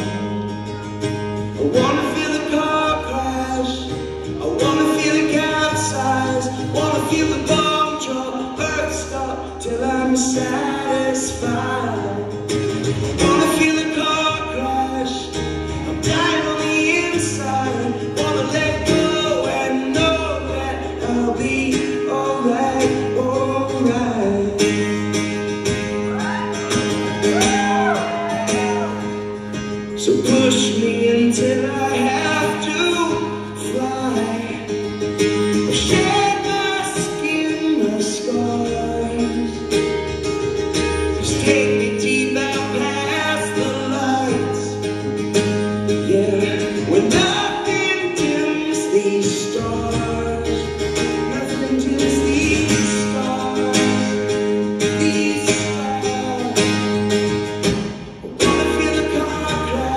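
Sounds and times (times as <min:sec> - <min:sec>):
strummed acoustic guitar: 0:00.0 - 0:59.9
man singing: 0:01.4 - 0:57.4, 0:58.2 - 0:59.9.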